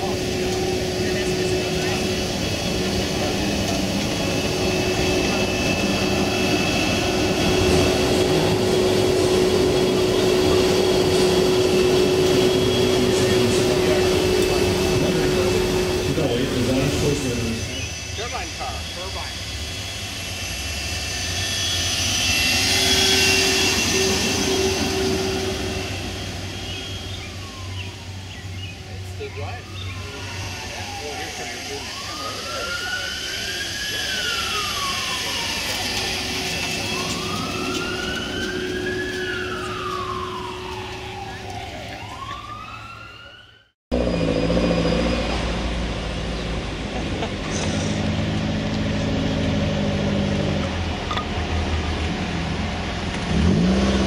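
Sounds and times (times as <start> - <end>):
turbine car passing: 0.0 - 41.3.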